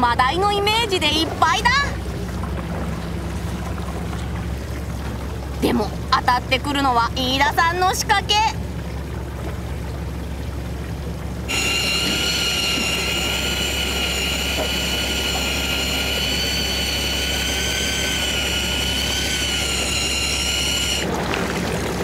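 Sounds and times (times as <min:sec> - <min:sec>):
low boat hum: 0:00.0 - 0:22.0
electric fishing reel motor whine: 0:11.5 - 0:21.2.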